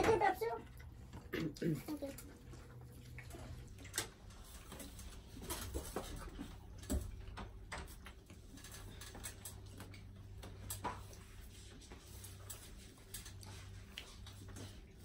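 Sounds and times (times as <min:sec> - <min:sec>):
chewing and lip smacks: 0:00.6 - 0:05.0.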